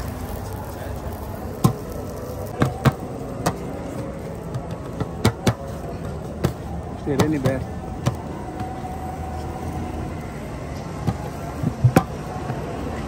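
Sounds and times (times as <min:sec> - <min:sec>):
sharp clacks at griddle: 0:01.5 - 0:05.8.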